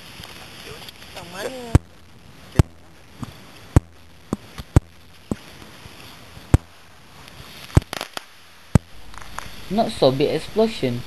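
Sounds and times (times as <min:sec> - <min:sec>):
sodium popping on water: 0:01.7 - 0:05.6, 0:06.4 - 0:06.9, 0:07.7 - 0:08.1, 0:08.7 - 0:09.5.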